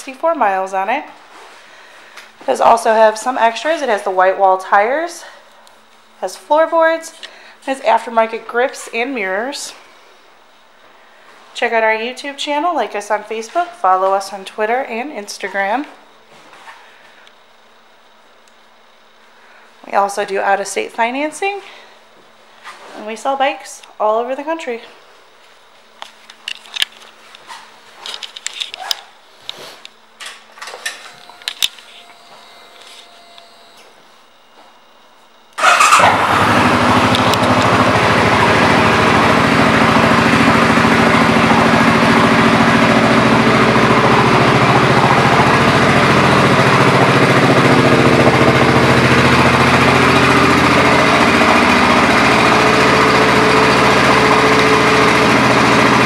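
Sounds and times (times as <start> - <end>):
motorcycle engine starting and idling: 35.6 - 56.0.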